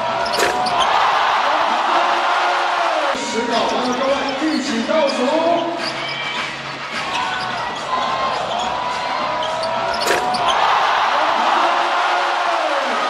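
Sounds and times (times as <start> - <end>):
sneaker squeaks: 0.0 - 1.2, 3.5 - 10.9
crowd cheering: 0.0 - 13.0
ball hitting rim: 0.2 - 1.2, 9.9 - 10.9.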